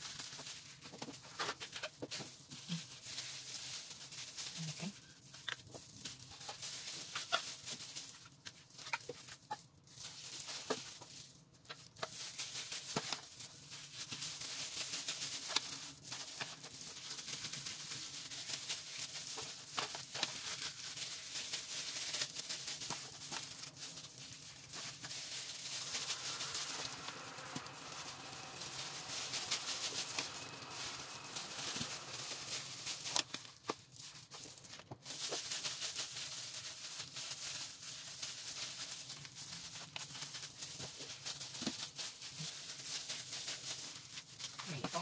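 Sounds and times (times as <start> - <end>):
gloved hand handling sticky dough: 15.4 - 35.6
steady hiss: 20.2 - 33.9.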